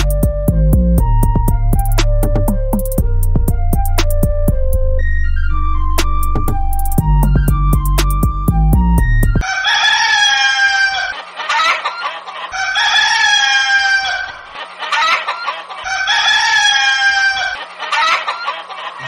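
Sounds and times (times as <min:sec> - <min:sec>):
rooster clucking: 0:09.4 - 0:19.0
rooster crowing: 0:09.4 - 0:19.0.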